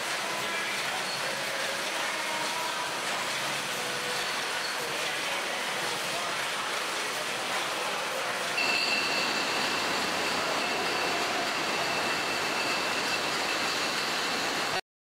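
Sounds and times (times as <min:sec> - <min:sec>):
machinery and conveyors running: 0:00.0 - 0:14.8
high steady machine whine: 0:08.5 - 0:14.8.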